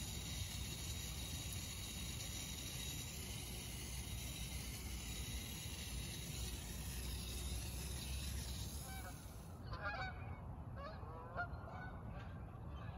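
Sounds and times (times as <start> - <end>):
steady hiss: 0.0 - 9.6
geese honking: 8.8 - 10.1.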